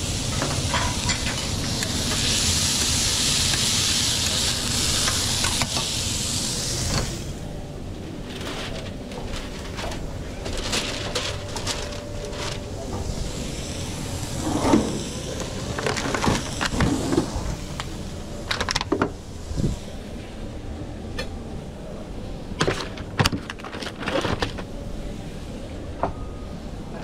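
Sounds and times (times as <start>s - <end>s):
low background hum: 0.0s - 27.0s
cooking knocks and clatter: 0.3s - 3.7s.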